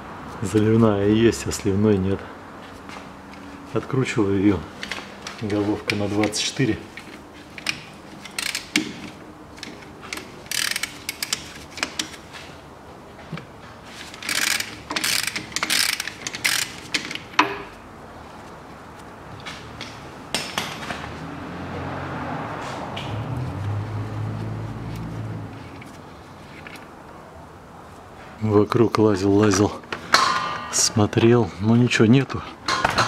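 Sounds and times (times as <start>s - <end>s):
socket ratchet clicking: 7.0s - 12.2s, 14.2s - 17.6s.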